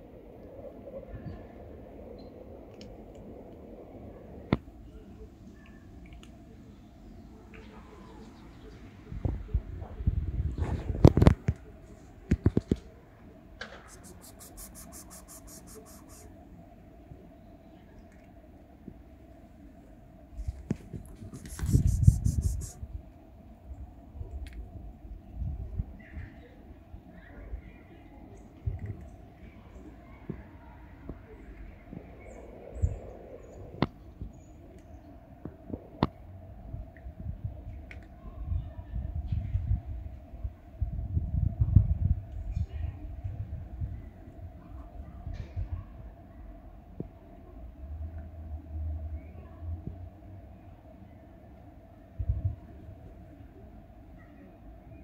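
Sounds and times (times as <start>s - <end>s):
fast faint high ticks: 13.8s - 16.3s
faint high chirps: 13.9s - 16.3s.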